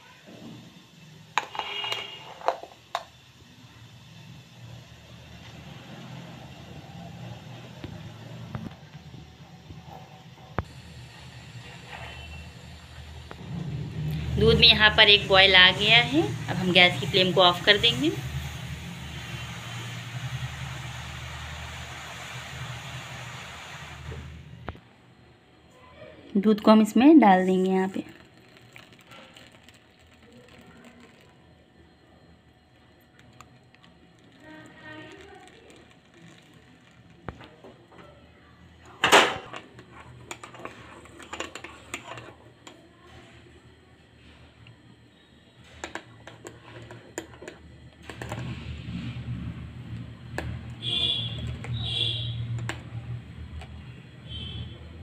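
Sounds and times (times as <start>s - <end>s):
milk pouring into ceramic mugs: 27.9s - 38.9s, 49.9s - 52.9s.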